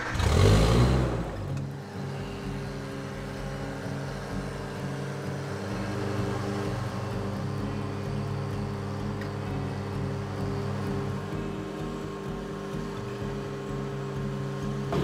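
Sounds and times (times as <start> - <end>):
deep hum: 0.0 - 2.7
lift engine running: 0.0 - 15.0.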